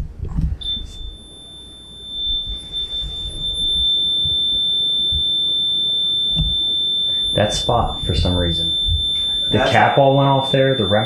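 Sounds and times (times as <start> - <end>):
high-pitched electronic alarm tone: 0.6 - 11.0.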